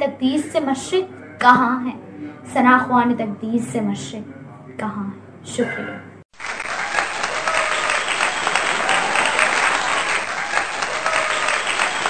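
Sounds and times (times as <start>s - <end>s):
faint crowd voices: 0.0s - 6.2s
crowd applauding: 6.3s - 12.0s.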